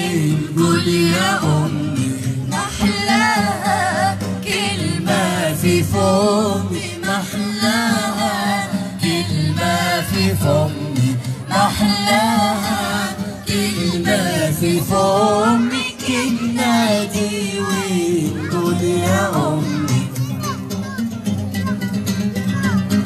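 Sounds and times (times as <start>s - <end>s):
mixed vocal group singing: 0.0s - 20.5s.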